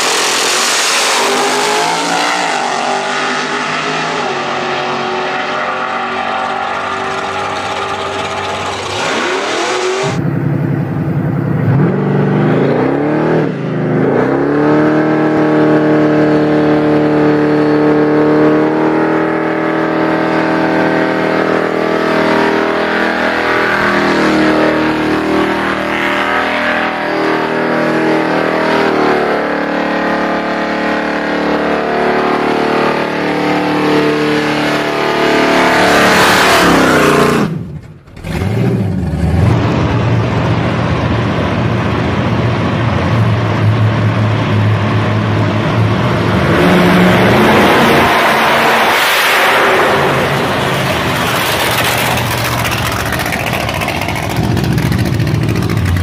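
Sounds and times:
supercharged engine revving high: 0.0 - 56.0
engine running at steady low note: 6.5 - 9.0, 10.1 - 14.0, 37.5 - 47.4, 50.8 - 56.0.

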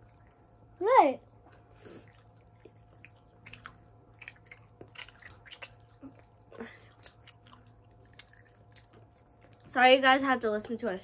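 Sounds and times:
people chewing candy: 0.0 - 9.8.

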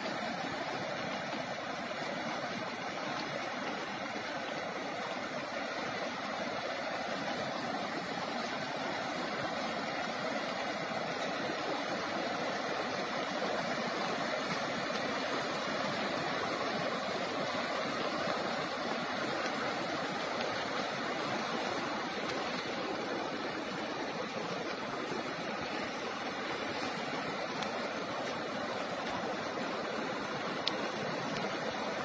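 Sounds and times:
floodwater rushing: 0.0 - 32.0.

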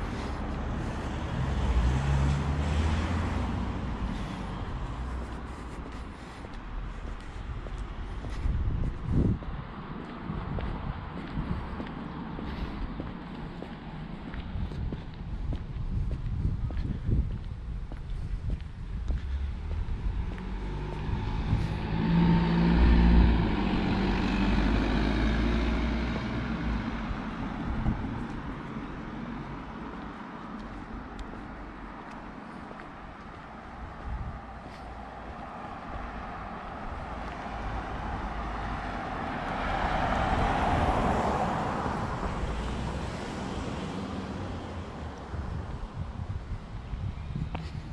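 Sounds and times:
car driving past: 0.0 - 5.6, 19.3 - 30.7, 33.8 - 46.0
wind on microphone: 6.4 - 13.2, 14.0 - 29.8, 33.0 - 47.9.

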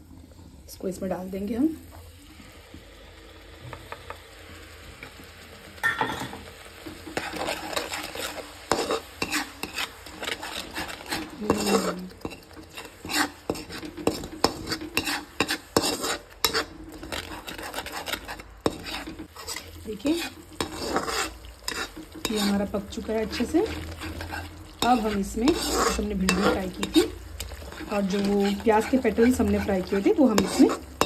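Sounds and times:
paste sizzling in a pan: 0.0 - 31.0
metal spoon scraping a pan: 5.8 - 31.0.

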